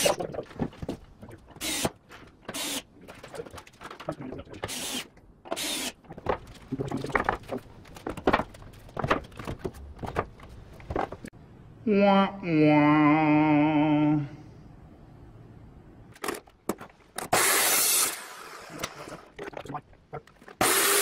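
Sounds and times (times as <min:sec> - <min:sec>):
wooden boards knocking and scraping: 0:06.1 - 0:11.3.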